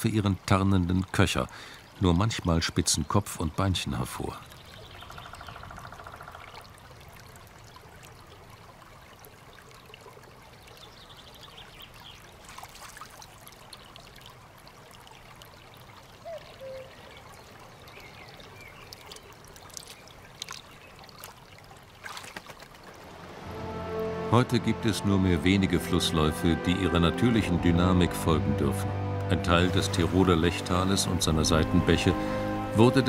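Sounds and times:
stream babbling: 0.0s - 33.0s
small clicks and splashes: 4.4s - 16.3s, 17.0s - 23.1s.

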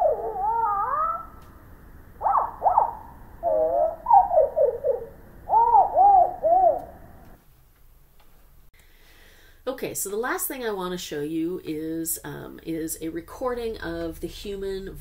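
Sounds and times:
slowed birdsong whistles: 0.0s - 7.3s.

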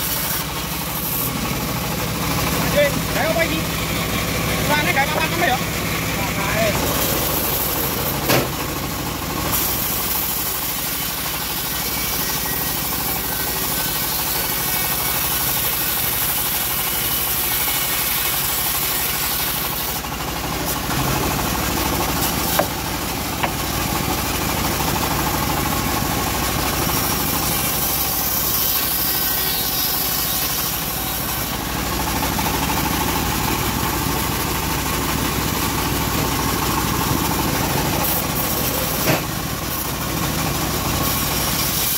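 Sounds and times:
bandsaw ripping wood: 0.0s - 1.5s, 6.6s - 8.6s, 9.5s - 23.6s, 26.5s - 32.3s, 37.2s - 41.9s.

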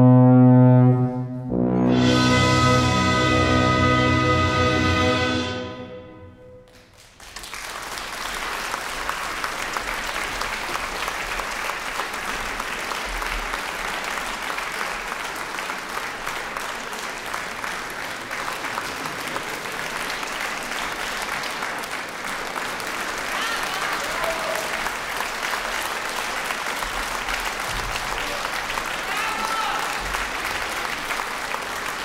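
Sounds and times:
orchestra final chord: 0.0s - 6.8s
audience applauding: 6.6s - 32.0s.

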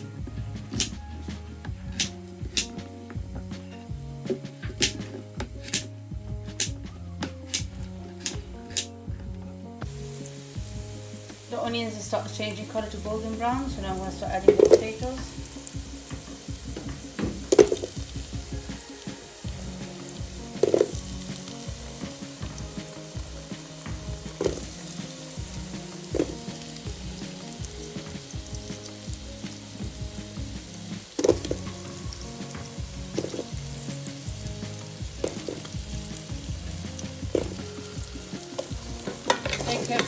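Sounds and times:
oil sizzling: 0.0s - 40.0s
potato pieces knocking into pan: 38.6s - 40.0s.

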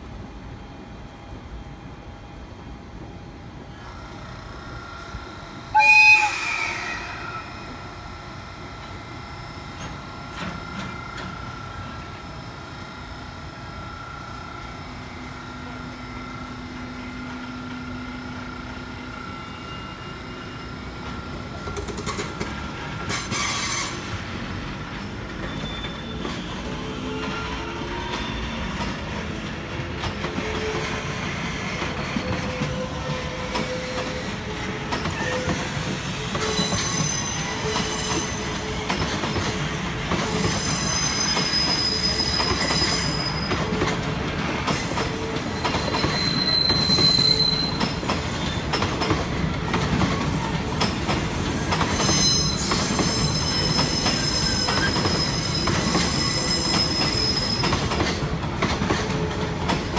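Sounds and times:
train wheels rumbling on rails: 0.0s - 59.9s
high-pitched wheel squeal: 5.8s - 7.8s, 19.4s - 20.8s, 25.3s - 28.7s, 32.0s - 39.5s, 40.3s - 43.6s, 44.8s - 48.7s, 51.6s - 57.9s.

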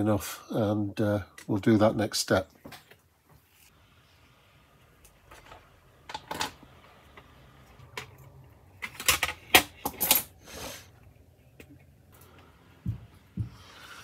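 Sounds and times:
plastic parts clacking: 5.0s - 10.3s.

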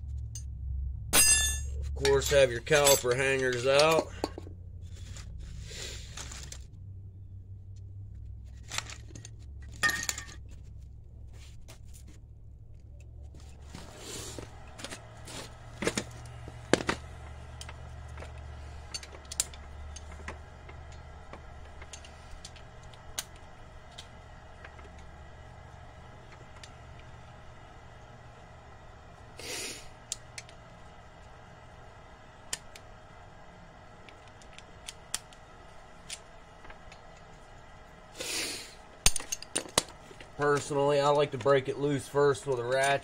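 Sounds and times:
low steady hum: 0.0s - 43.0s
metal tools clinking: 1.2s - 4.4s, 8.6s - 10.6s, 39.1s - 41.6s.

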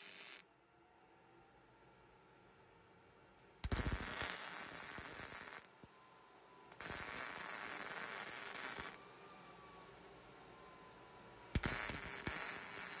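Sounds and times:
welder arc crackling on steel: 3.6s - 5.7s, 6.7s - 9.0s, 11.6s - 13.0s.

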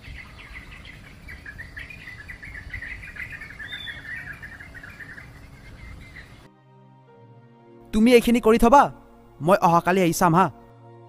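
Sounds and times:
small birds chirping: 0.0s - 6.5s.

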